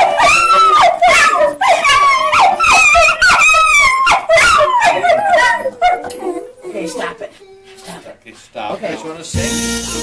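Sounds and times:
dogs howling and yipping: 0.0 - 7.3.

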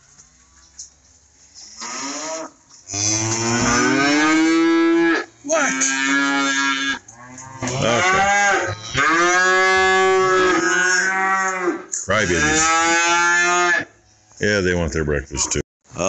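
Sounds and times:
cattle mooing: 1.8 - 13.9.

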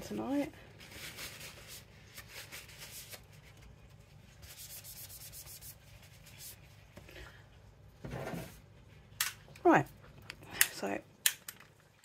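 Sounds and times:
scraping and rubbing strokes: 0.8 - 6.9.

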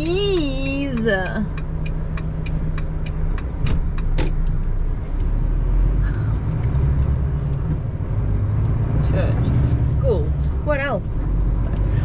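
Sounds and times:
road noise: 0.0 - 12.0.

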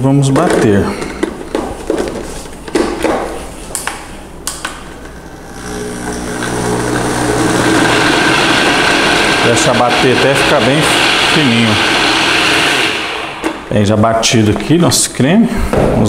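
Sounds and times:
blender motor running: 5.0 - 13.7.

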